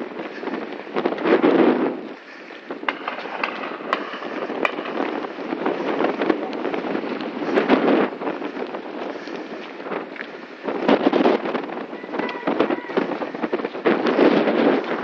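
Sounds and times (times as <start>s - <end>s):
wind on microphone: 0.0s - 15.0s
sharp clicks and knocks: 2.8s - 6.3s.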